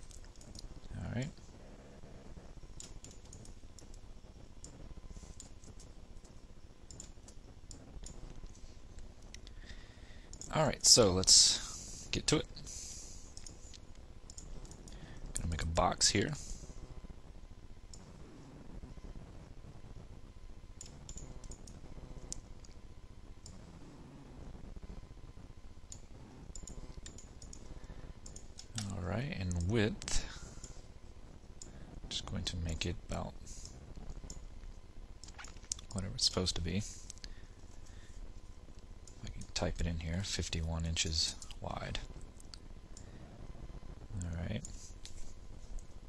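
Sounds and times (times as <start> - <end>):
computer mouse clicks: 0.0 - 0.7, 2.8 - 4.0, 4.6 - 9.6, 10.3 - 10.6, 13.3 - 15.0, 20.8 - 22.8, 25.9 - 29.7, 33.6 - 34.4
faint low hum: 0.0 - 46.0.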